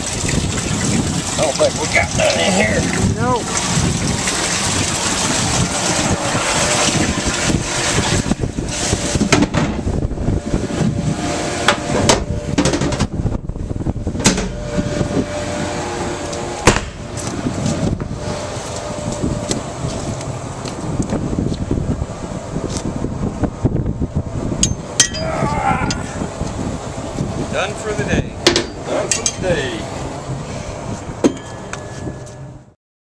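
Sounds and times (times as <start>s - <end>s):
boat running on water: 0.0s - 32.8s
sharp knocks: 16.6s - 17.0s.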